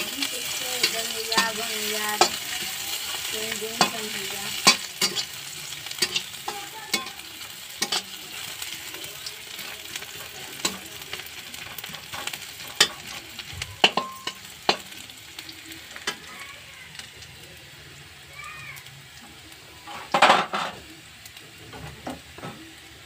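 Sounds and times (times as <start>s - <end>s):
metal spatula scraping a wok: 0.0s - 7.2s, 9.6s - 14.9s, 19.8s - 20.8s
onions sizzling in hot oil: 0.0s - 23.0s.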